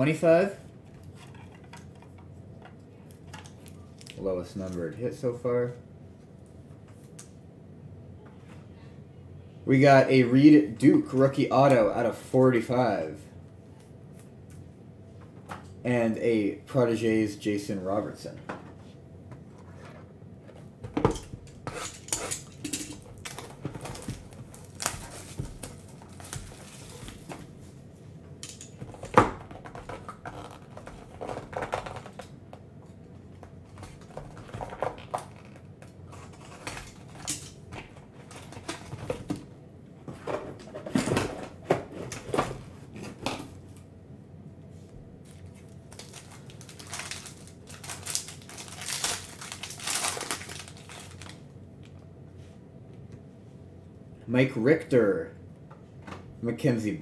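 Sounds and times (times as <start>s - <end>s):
foil wrapper crinkling: 21.9s - 27.3s, 45.3s - 51.5s.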